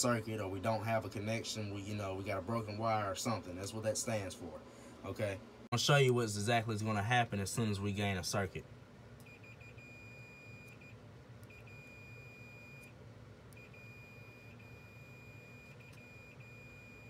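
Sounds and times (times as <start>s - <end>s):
multimeter continuity beeper tone: 9.2s - 12.9s, 13.5s - 17.0s.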